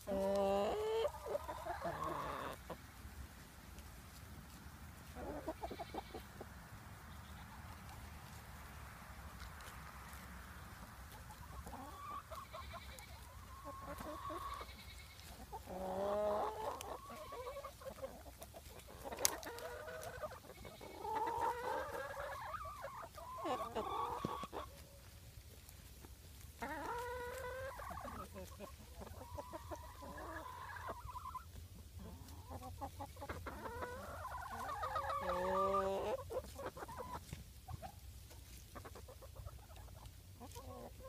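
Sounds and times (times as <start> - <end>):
farm animals calling: 0.0 - 41.0.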